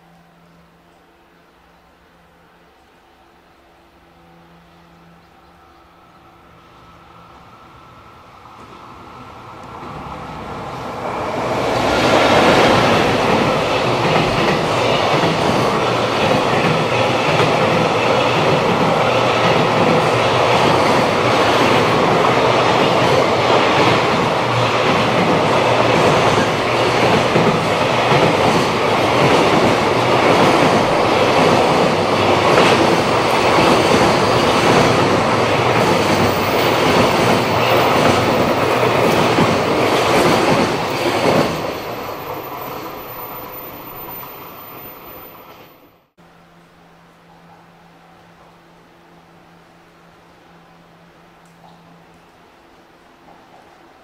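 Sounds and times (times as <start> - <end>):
electric locomotive passing: 0.0 - 54.0
train wheels clattering on rails: 11.2 - 43.3.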